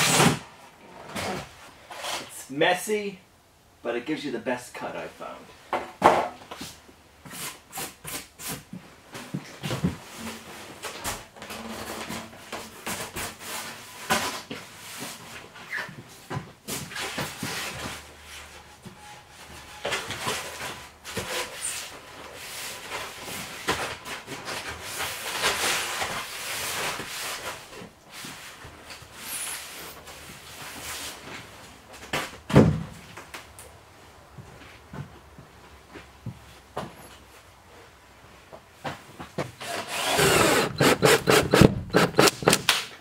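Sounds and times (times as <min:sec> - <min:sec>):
foam boards rubbing and scraping: 0:39.4 - 0:42.8.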